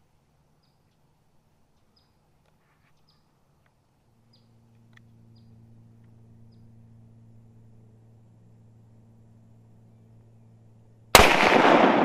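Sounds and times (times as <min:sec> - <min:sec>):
steady low hum: 0:00.0 - 0:12.0
faint bird chirps: 0:00.5 - 0:03.4, 0:04.2 - 0:07.6.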